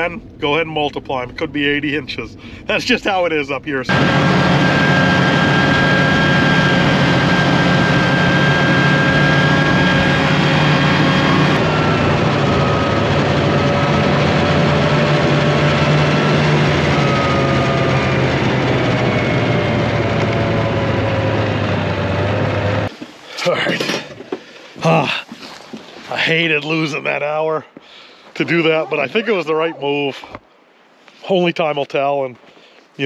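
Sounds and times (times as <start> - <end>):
drive whine: 0.0 - 24.0
snowmobile engine running: 3.9 - 24.0, 28.4 - 30.1.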